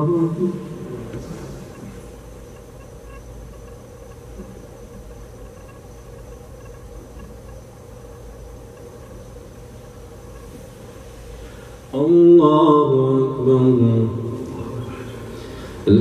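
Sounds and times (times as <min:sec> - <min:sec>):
low hum: 0:00.0 - 0:16.0
thin high whine: 0:00.0 - 0:16.0
faint ticks: 0:01.7 - 0:10.6.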